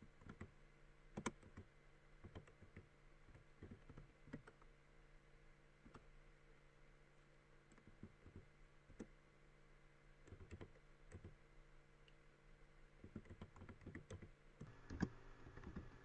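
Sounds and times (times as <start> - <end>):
faint keyboard typing: 0.0 - 4.7, 5.8 - 6.1, 7.6 - 9.2, 10.2 - 11.4, 13.0 - 16.0.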